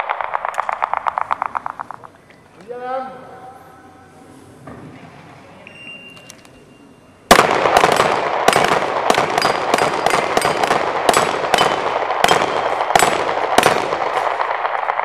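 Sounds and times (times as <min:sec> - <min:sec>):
rapid handgun fire: 0:00.0 - 0:02.2, 0:07.3 - 0:15.0
bullets hitting steel plates: 0:07.8 - 0:13.8.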